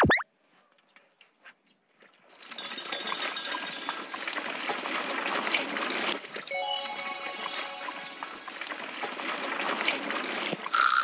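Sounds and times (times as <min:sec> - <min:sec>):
music: 0:06.5 - 0:08.8.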